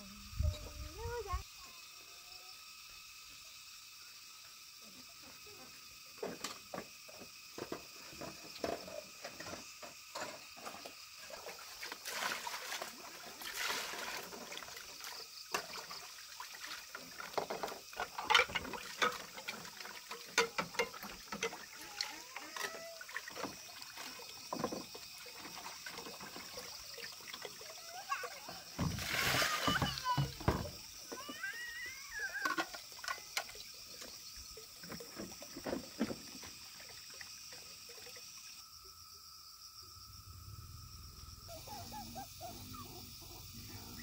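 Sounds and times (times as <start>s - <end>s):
water running from pipe: 11.1s - 38.6s
water splashing in basin: 11.2s - 38.6s
dishes knocking and clinking: 20.3s - 21.6s.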